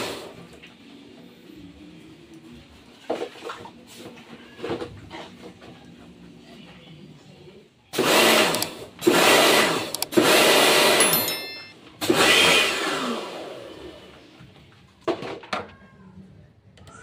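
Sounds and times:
pressure washer motor running: 8.0 - 11.0.

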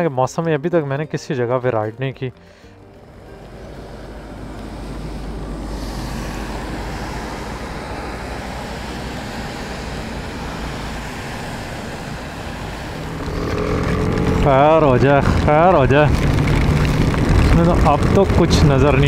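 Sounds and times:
wind: 0.0 - 19.0
truck tyres hissing through water: 2.5 - 13.9
rain: 3.0 - 19.0.

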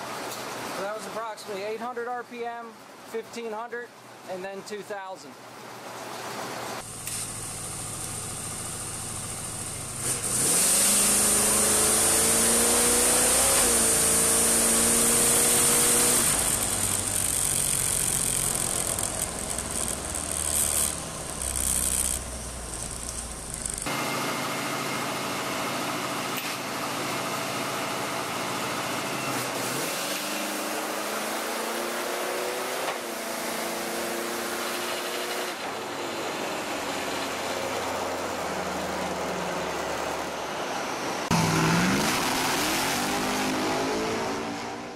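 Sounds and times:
race engine revving: 9.9 - 23.8, 41.2 - 44.9.

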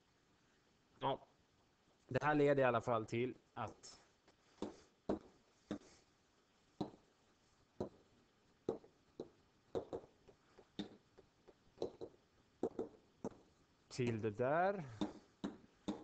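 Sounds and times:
stylus tapping on pen tablet: 6.8 - 7.0, 7.8 - 8.0, 8.6 - 13.4, 15.0 - 16.0.

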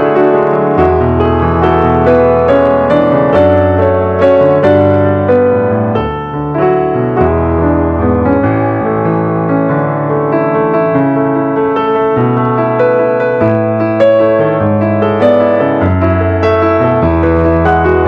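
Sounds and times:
piano music: 0.0 - 18.0.

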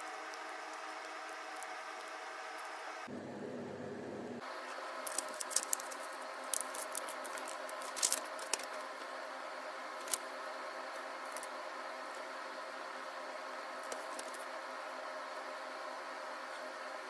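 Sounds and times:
paper crackling while folded: 5.0 - 9.0.

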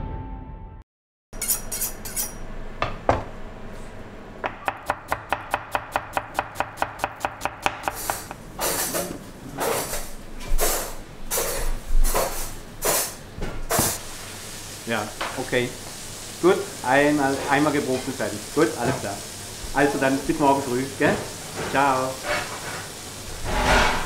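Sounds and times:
knife chopping on cutting board: 4.4 - 10.0.

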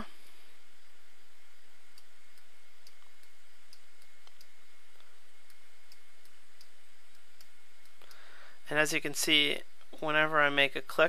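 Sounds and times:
steady hiss: 0.0 - 11.0.

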